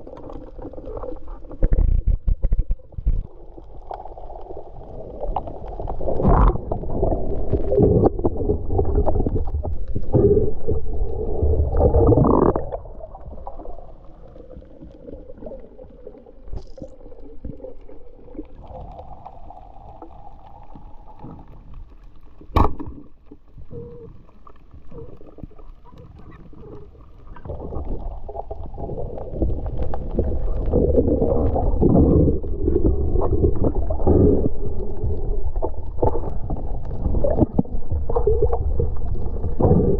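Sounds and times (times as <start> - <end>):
muffled underwater rushing and bubbling: 0.0 - 39.9.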